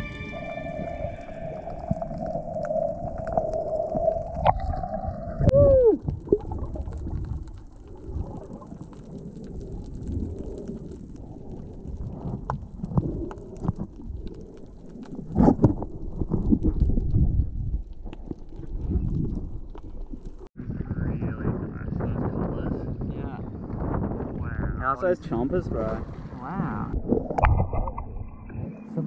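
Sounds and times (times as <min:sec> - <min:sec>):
held tone with falling glide: 0:00.0 - 0:03.2
underwater churning and bubbles: 0:00.0 - 0:20.5, 0:21.2 - 0:29.0.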